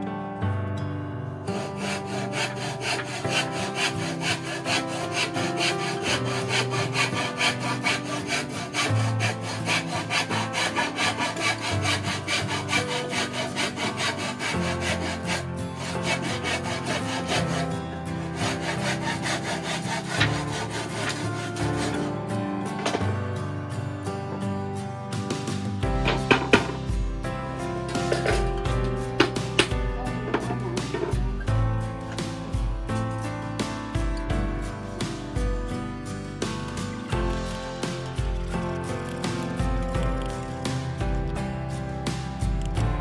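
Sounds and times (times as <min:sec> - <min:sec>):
background music: 0:00.0 - 0:43.0
hand saw cutting wood: 0:01.5 - 0:23.1, 0:25.9 - 0:26.9, 0:27.9 - 0:31.2, 0:36.4 - 0:41.0.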